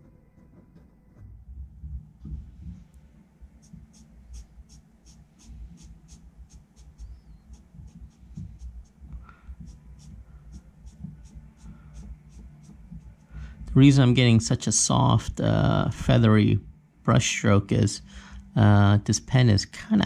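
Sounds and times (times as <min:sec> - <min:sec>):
pen strokes scratching paper: 0:03.6 - 0:13.4.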